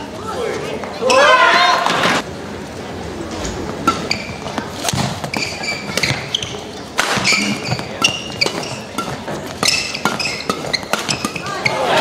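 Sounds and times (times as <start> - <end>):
shoes squeaking on court: 3.4 - 12.0
rackets striking shuttlecock: 3.7 - 11.8.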